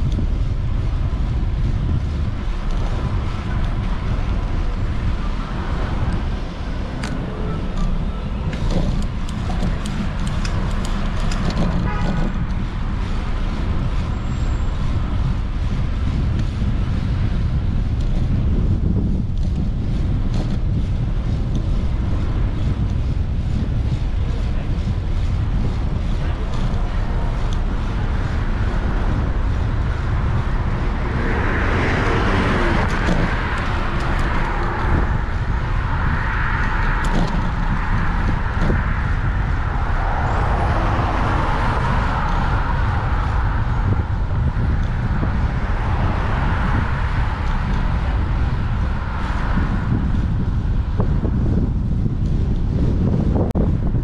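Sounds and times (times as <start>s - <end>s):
passing street traffic: 0.0s - 54.0s
wind buffeting microphone: 0.0s - 54.0s.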